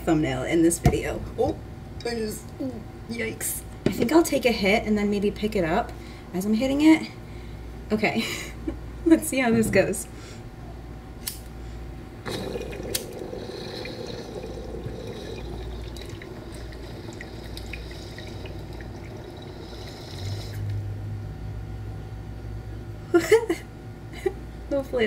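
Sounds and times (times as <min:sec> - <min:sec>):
water bubbling in a bong: 0:12.2 - 0:20.8
person exhaling: 0:12.3 - 0:15.8.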